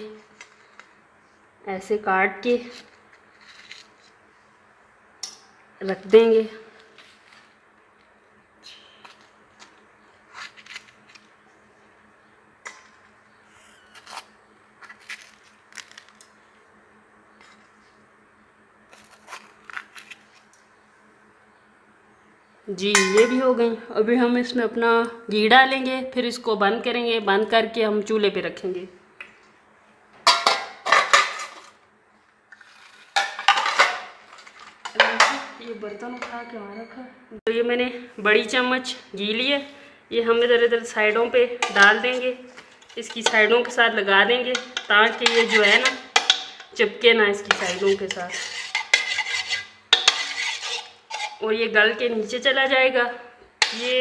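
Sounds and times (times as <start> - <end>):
pot and lid clanking: 23.0 - 23.5, 30.2 - 31.6, 44.5 - 46.7.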